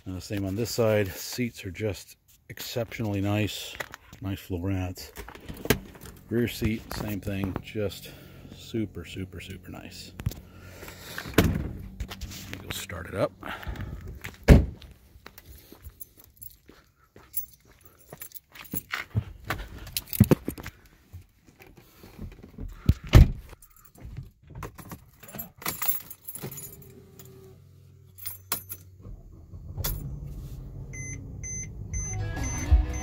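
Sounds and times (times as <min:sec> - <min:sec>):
car engine cranking and idling: 0:03.7 - 0:23.7, 0:24.3 - 0:33.0
keys jangling and clicking: 0:15.3 - 0:19.2, 0:19.8 - 0:20.6, 0:23.5 - 0:27.4, 0:28.1 - 0:29.0
seatbelt warning chime beeping: 0:30.9 - 0:33.0.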